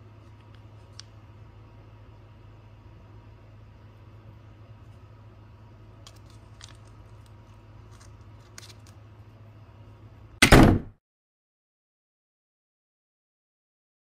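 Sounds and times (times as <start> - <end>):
low hum: 0.0 - 10.6.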